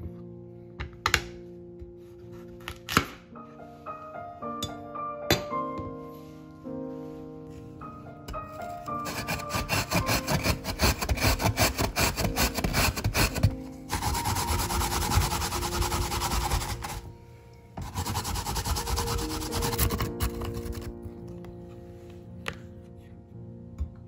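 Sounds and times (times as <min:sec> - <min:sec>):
carrot grating on grater: 0:08.9 - 0:17.0, 0:17.8 - 0:20.9.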